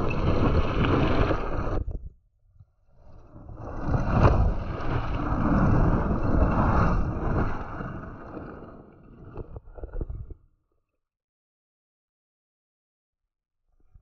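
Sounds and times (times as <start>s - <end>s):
bike tyres rolling on gravel: 0.0s - 1.8s, 3.5s - 9.1s.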